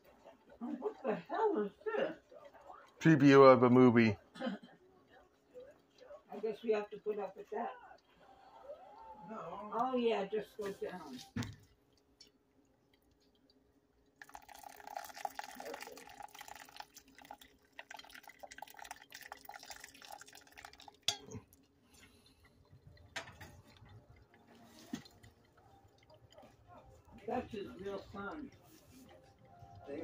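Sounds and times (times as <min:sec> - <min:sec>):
water pouring onto coffee grounds: 0:00.0 - 0:04.2, 0:13.4 - 0:30.0
water trickling: 0:00.0 - 0:30.0.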